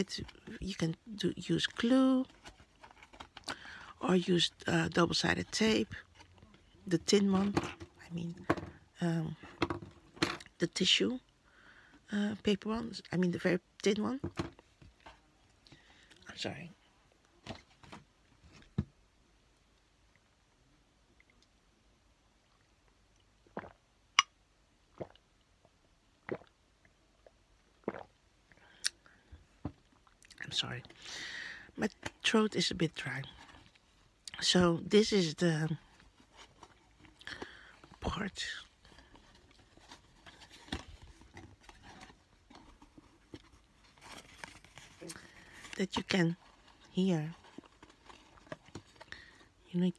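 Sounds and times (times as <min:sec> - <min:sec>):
paper rustling and crinkling: 0:02.2 - 0:03.5, 0:38.8 - 0:49.5.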